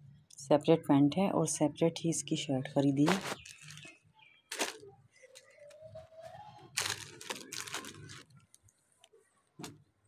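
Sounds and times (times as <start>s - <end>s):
plastic bags crinkling: 3.0s - 5.8s, 6.6s - 8.6s.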